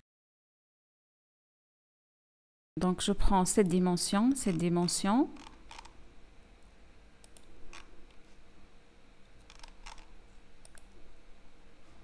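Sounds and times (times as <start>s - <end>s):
low steady hum: 2.8s - 12.0s
computer mouse clicks: 4.4s - 5.9s, 7.2s - 8.2s, 9.4s - 11.0s.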